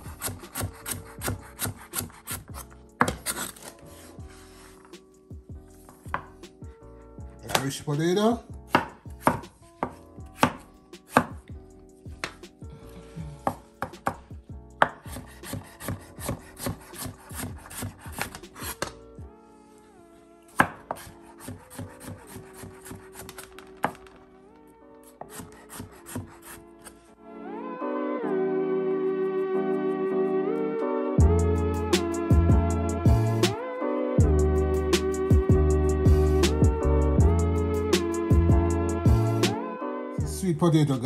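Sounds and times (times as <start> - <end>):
knife chopping on wooden board: 0.0 - 3.7, 8.7 - 11.5, 13.4 - 19.0, 20.5 - 24.1, 25.1 - 27.0.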